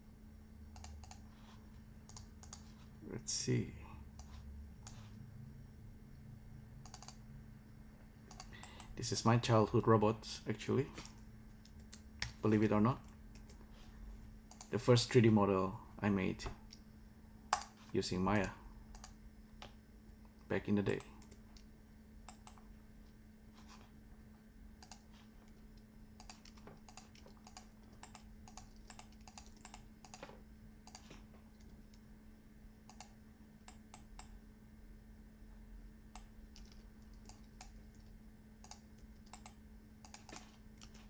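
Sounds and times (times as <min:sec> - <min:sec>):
steady low hum: 0:00.0 - 0:41.0
mouse clicks: 0:06.8 - 0:07.2, 0:21.0 - 0:22.6.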